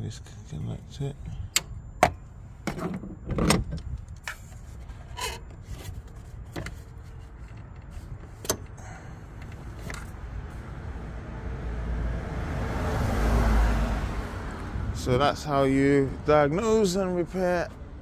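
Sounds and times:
clicks and knocks of handling wiring: 1.5s - 8.8s.

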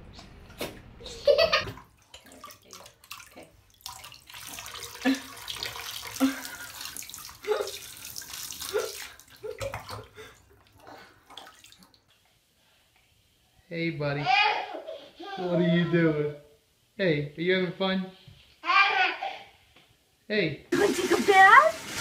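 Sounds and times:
toddler laughing: 1.0s - 1.8s, 14.2s - 16.0s, 18.6s - 19.5s
water running from bath tap: 1.2s - 12.4s, 20.7s - 22.0s
baby vocal sounds: 14.2s - 16.3s, 18.6s - 19.6s.

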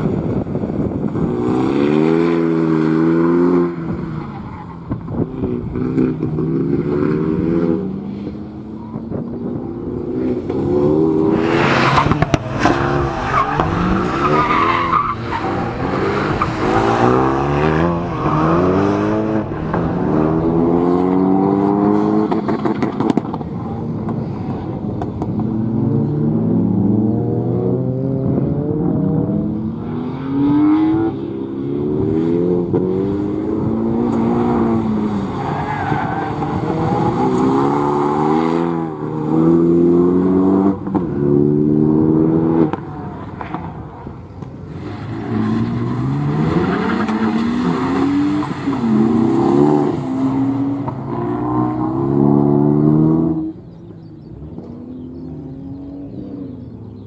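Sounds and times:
car engine revving hard: 10.3s - 23.4s.

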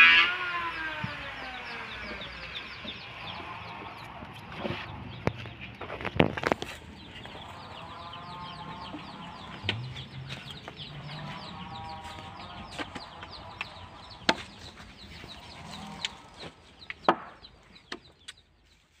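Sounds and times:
chickens clucking: 1.0s - 18.9s.

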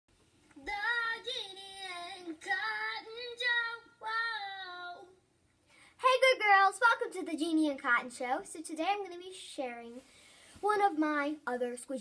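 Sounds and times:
girl singing a jingle: 0.6s - 5.2s.

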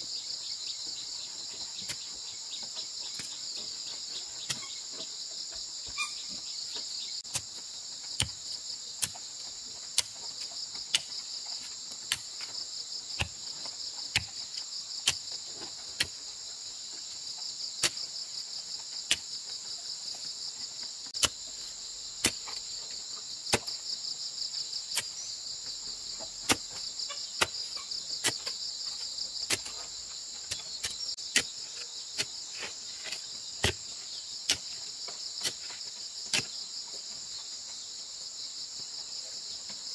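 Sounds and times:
insects chirring: 0.0s - 39.9s
spade striking hard earth: 4.4s - 4.7s, 7.2s - 7.6s, 8.2s - 8.4s, 9.9s - 10.2s, 10.8s - 12.6s, 13.2s - 13.4s, 14.1s - 15.3s, 16.0s - 16.2s, 17.8s - 18.0s, 21.2s - 22.7s, 23.5s - 23.8s, 24.9s - 25.2s, 26.2s - 28.6s, 29.4s - 33.9s, 34.5s - 34.8s, 35.4s - 36.6s.

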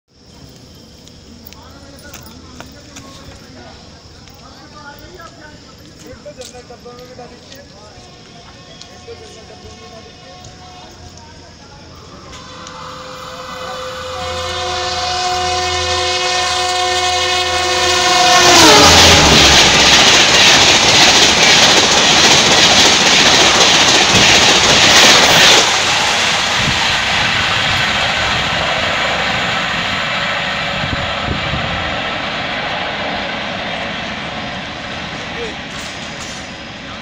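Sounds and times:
rush of train wheels: 0.3s - 37.0s
train horn: 7.9s - 11.2s, 12.2s - 20.0s.

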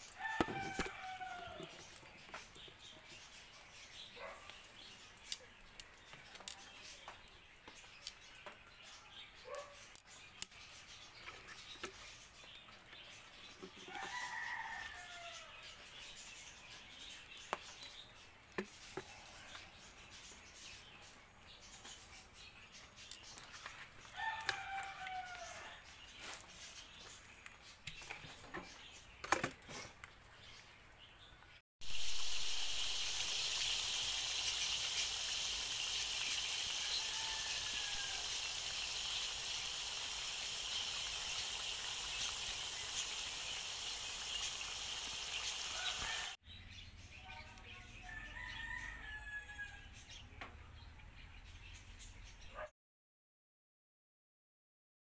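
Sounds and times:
rooster crowing: 0.1s - 1.8s, 13.9s - 15.6s, 24.2s - 25.8s, 36.6s - 38.5s, 45.7s - 46.4s, 48.0s - 49.9s
loud steady hiss with crackles: 31.8s - 46.4s.

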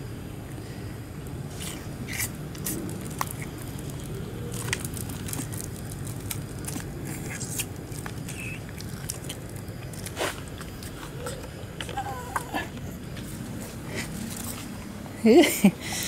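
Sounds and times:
steady low hum: 0.0s - 16.0s
monkey sucking from carton: 1.5s - 3.6s
packaging crinkle: 1.6s - 12.0s.

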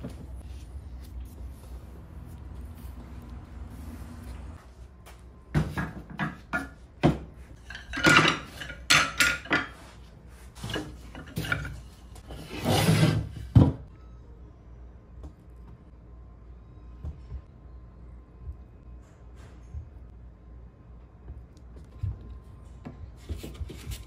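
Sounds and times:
wooden chair parts clattering: 5.5s - 13.9s.

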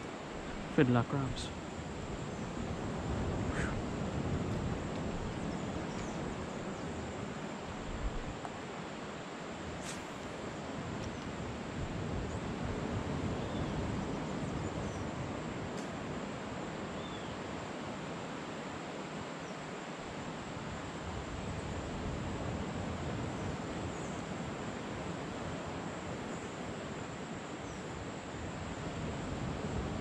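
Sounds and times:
faint short chirps: 3.5s - 3.8s.

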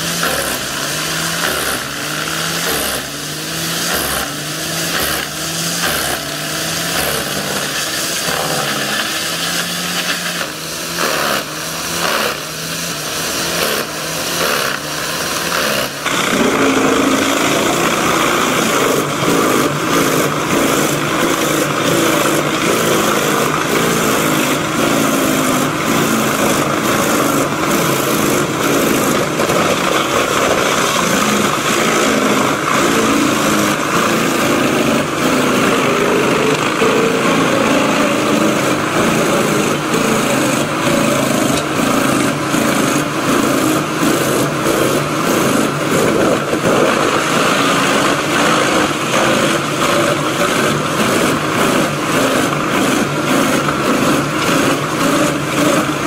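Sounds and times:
wood chipper engine drone: 0.0s - 56.0s.

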